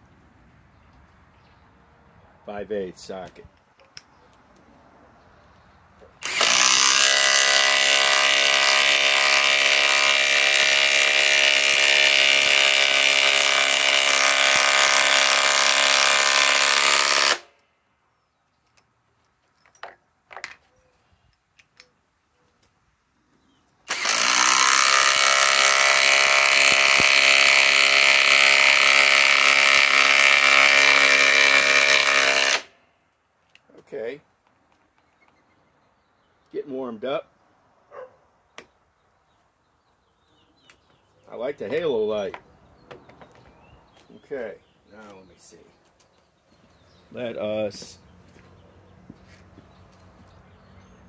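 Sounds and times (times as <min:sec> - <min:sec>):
impact driver hammering screws: 0:06.2 - 0:17.6, 0:23.9 - 0:32.7.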